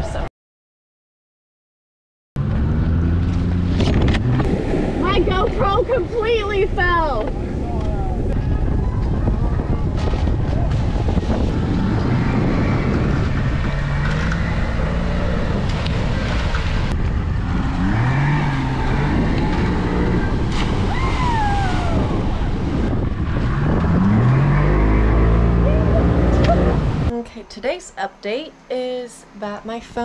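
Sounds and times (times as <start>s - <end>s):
low rumble: 2.4s - 27.2s
wind buffeting microphone: 3.7s - 27.1s
people calling and whooping: 20.8s - 22.7s, 25.6s - 26.8s.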